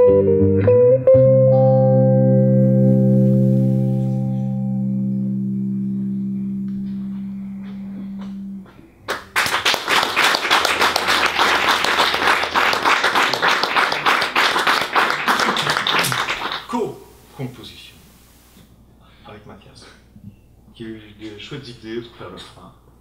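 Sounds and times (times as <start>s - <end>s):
electric guitar chord ringing: 0.0s - 9.2s
audience applauding: 9.1s - 17.0s.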